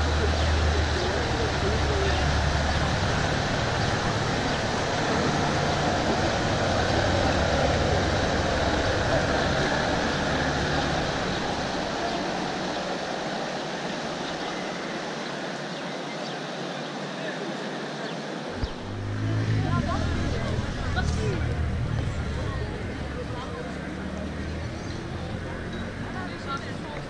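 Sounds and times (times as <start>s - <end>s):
water wash from wake: 0.0s - 15.1s
boat engine hum: 0.0s - 15.6s, 18.4s - 27.0s.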